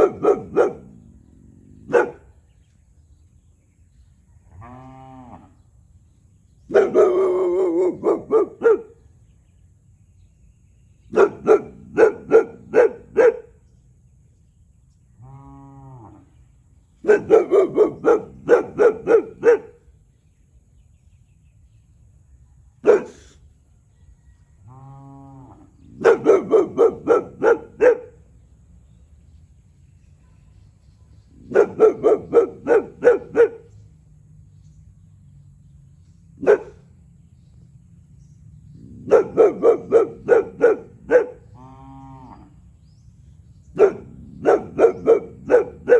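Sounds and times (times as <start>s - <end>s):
dog barking: 0.0s - 1.0s, 1.8s - 2.3s, 6.7s - 9.0s, 11.1s - 13.6s, 17.0s - 19.8s, 22.8s - 23.4s, 25.9s - 28.2s, 31.4s - 33.7s, 36.4s - 36.8s, 39.0s - 41.5s, 43.7s - 45.9s
cow mooing: 4.5s - 5.6s, 41.6s - 42.5s.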